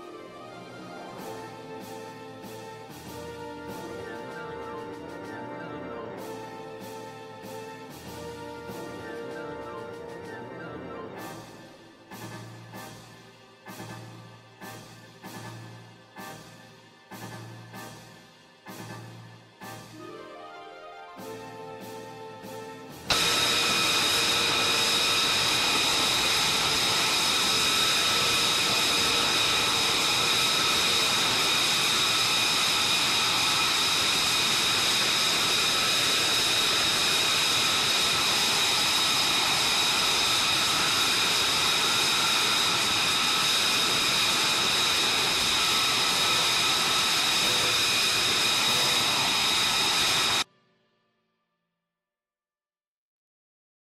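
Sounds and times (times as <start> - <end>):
jet engine whine and rush: 0.0 - 13.0, 21.2 - 50.5.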